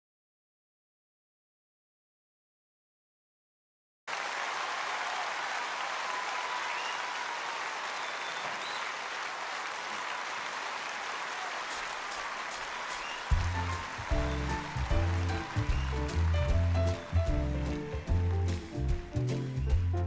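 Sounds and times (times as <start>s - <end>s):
audience applauding: 4.1s - 20.0s
low musical accompaniment: 13.3s - 20.0s.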